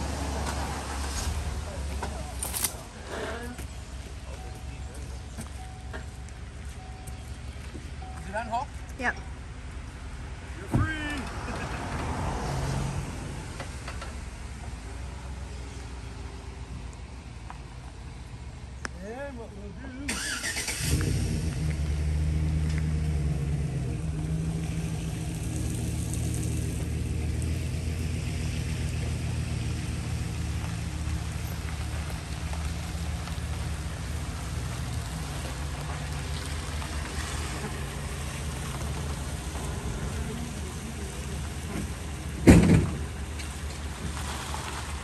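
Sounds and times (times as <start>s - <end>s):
car engine idling: 18.7s - 45.0s.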